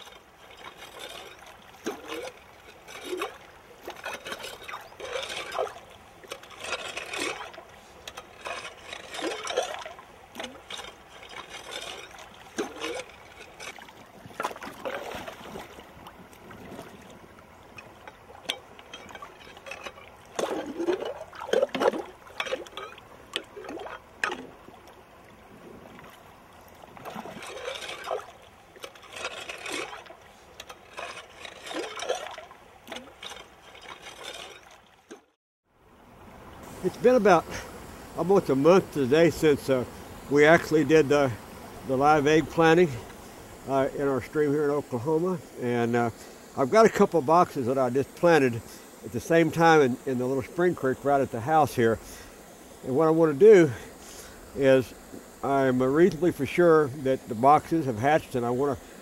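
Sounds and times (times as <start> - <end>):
pole sweeping through water: 0.0 - 24.8, 25.6 - 35.3
water splashing and sloshing: 0.0 - 59.0.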